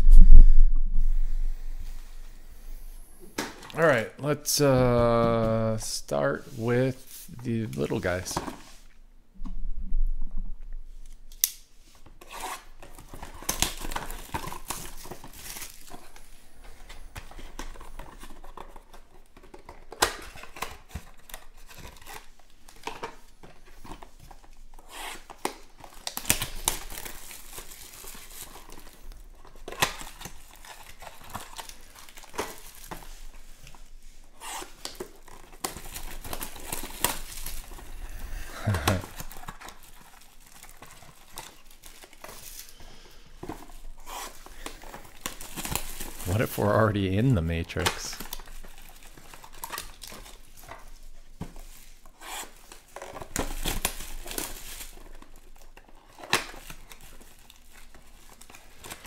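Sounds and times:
cellophane crinkling and tearing: 12.2 - 59.0.

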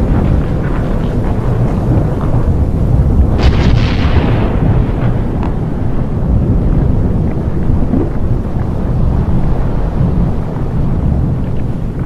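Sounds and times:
deep volcano rumble: 0.0 - 12.0
faint crackles: 5.0 - 12.0.

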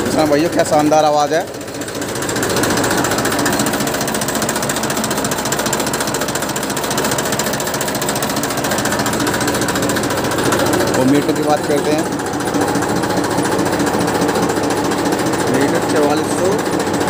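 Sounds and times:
tractor diesel engine clatter: 0.0 - 17.0.

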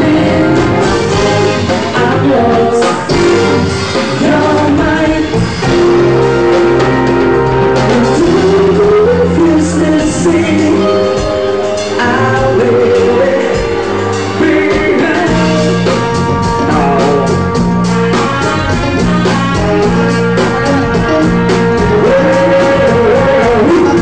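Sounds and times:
person singing: 0.0 - 6.2, 7.8 - 24.0
keyboard: 0.0 - 24.0
steady drum beat: 0.0 - 24.0.

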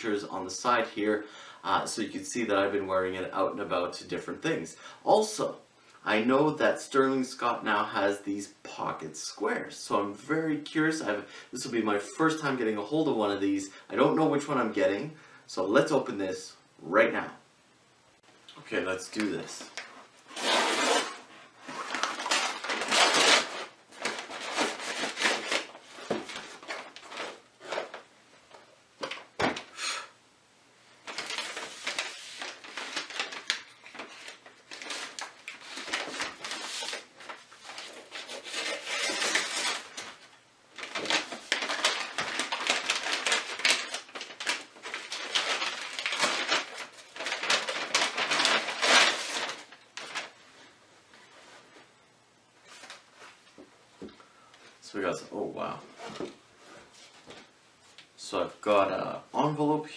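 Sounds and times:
paper and plastic crinkling: 19.1 - 29.7, 31.0 - 51.6
envelopes being torn open: 19.7 - 28.0, 31.1 - 50.3.

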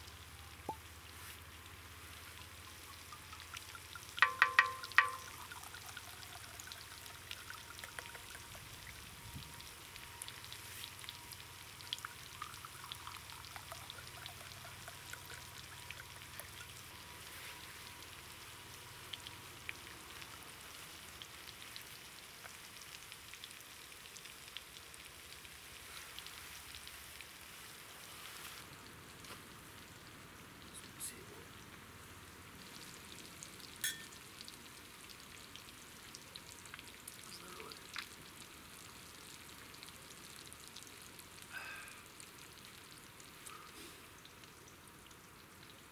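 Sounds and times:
wine pouring into glass: 3.0 - 8.7.

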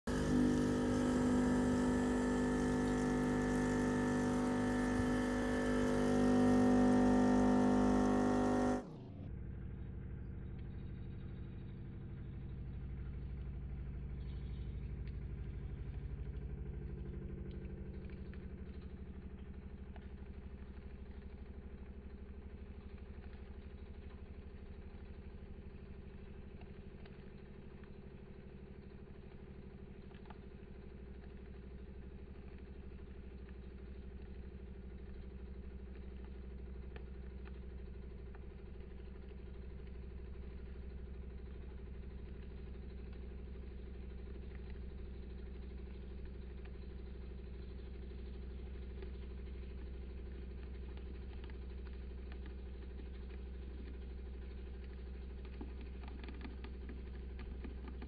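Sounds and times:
espresso machine pump humming: 0.1 - 58.0
faint clicks: 44.0 - 58.0.

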